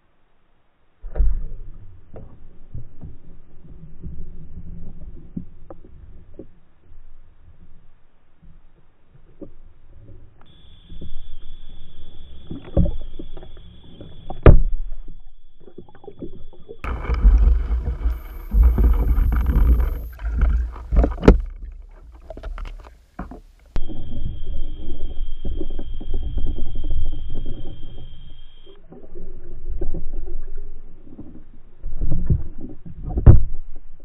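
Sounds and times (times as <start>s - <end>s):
low rumble of moving water: 0.0s - 34.0s
steady high whine: 10.4s - 28.8s
sharp underwater knocks: 16.8s - 23.8s.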